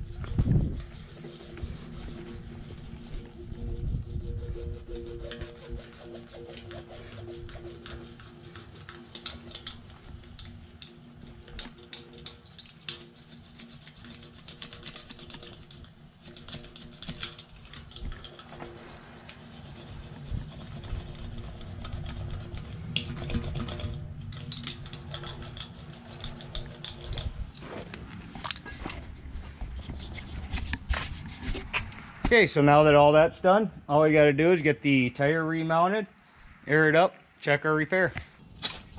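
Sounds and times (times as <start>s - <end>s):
scratchy rubbing with small clicks: 0.0s - 28.0s.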